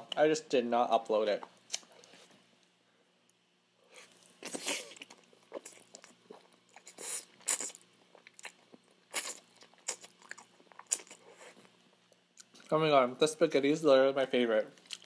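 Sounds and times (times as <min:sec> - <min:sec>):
person slurping and chewing: 0:03.9 - 0:11.7.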